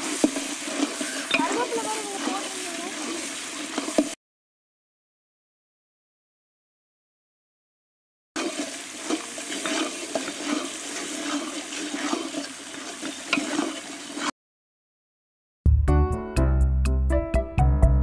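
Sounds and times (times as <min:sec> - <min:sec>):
ladle stirring sizzling sauce in pot: 0:00.0 - 0:04.2, 0:08.4 - 0:14.3
small scrapes and clicks: 0:08.4 - 0:14.3.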